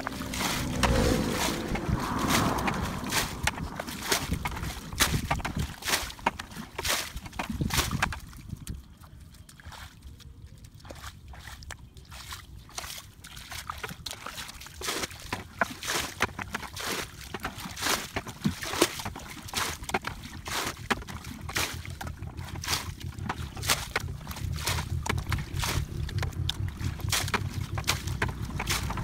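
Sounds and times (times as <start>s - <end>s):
wind rumble on microphone: 0.0s - 9.2s, 21.1s - 29.0s
splashing of shallow water: 0.0s - 29.0s.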